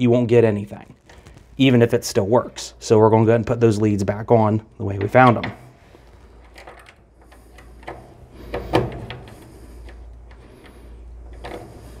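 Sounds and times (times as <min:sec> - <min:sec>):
small clicks and scrapes: 0:05.9 - 0:12.0.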